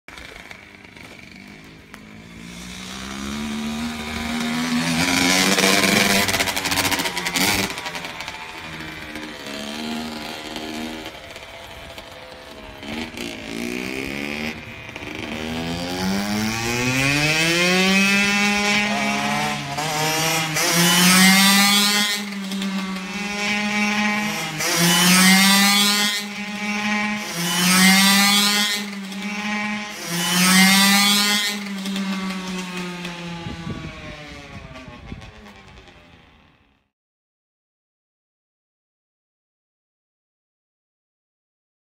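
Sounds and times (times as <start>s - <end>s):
dirt bike engine revving: 0.1s - 36.2s.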